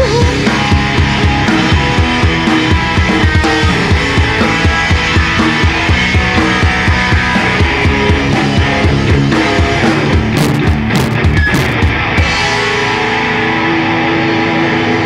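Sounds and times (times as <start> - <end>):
fast kick-drum beat: 0.0 - 13.1
bass guitar: 0.0 - 15.0
distorted electric guitar: 0.0 - 15.0.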